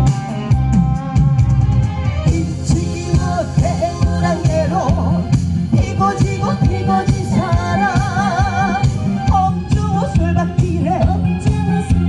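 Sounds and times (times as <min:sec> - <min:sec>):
instrumental accompaniment with beat: 0:00.0 - 0:12.0
woman singing into microphone: 0:05.8 - 0:09.0.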